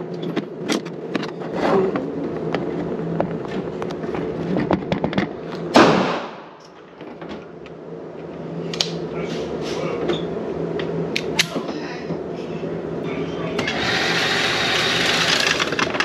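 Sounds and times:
gunshot with echo: 5.7 - 6.5.

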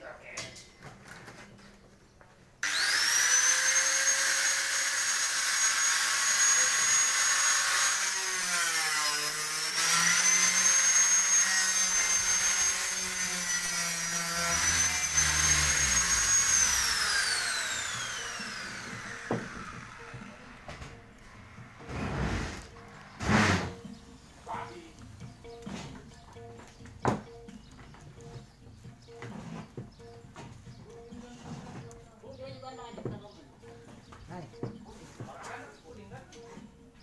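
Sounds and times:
angle grinder whining: 2.6 - 24.1
grinder cutting noise: 2.6 - 27.6, 28.2 - 32.1.

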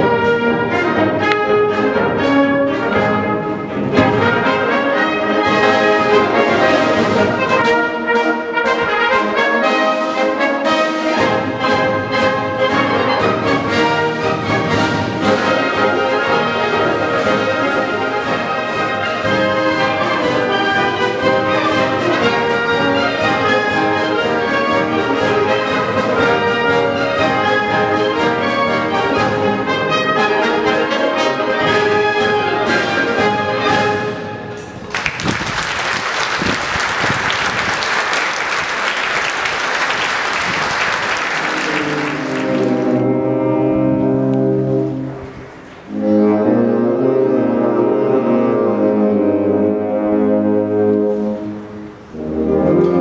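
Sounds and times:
concert band playing: 0.0 - 53.0
audience applauding: 34.8 - 43.0.

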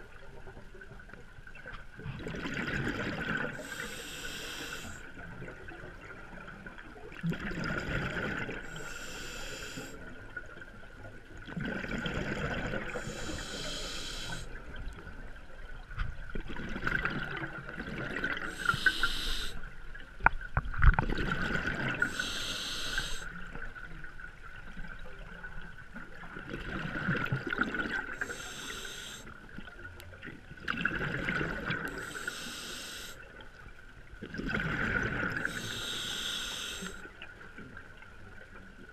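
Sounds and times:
exhaled bubbles rushing: 2.0 - 3.6, 7.1 - 8.6, 11.4 - 13.1, 16.4 - 18.9, 20.8 - 22.2, 30.6 - 32.0, 34.2 - 35.6
regulator hissing on inhale: 3.5 - 5.1, 8.6 - 10.1, 12.9 - 14.5, 18.4 - 19.6, 22.0 - 23.3, 28.1 - 29.4, 31.9 - 33.2, 35.4 - 37.1.

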